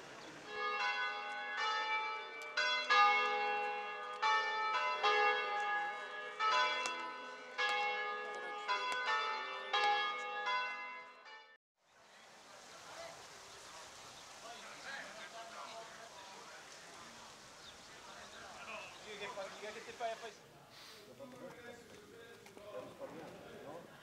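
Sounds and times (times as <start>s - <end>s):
church bells ringing: 0.0s - 11.6s.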